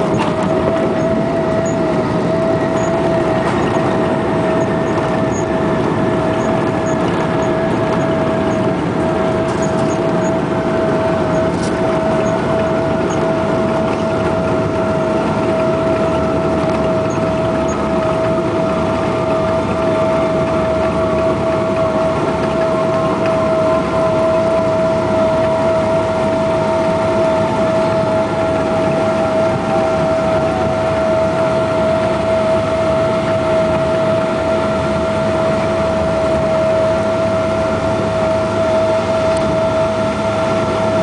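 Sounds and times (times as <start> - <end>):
jet engine roar in cabin: 0.0 - 41.0
steady engine whine: 0.0 - 41.0.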